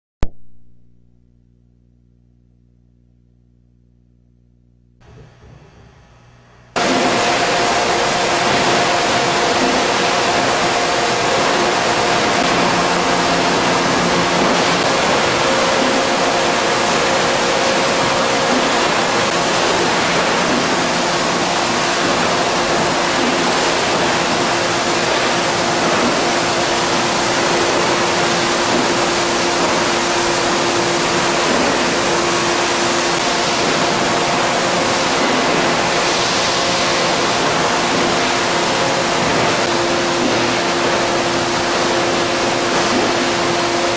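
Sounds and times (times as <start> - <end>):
faint steady hums: 0.3 - 6.8
factory floor rushing noise: 5.0 - 43.9.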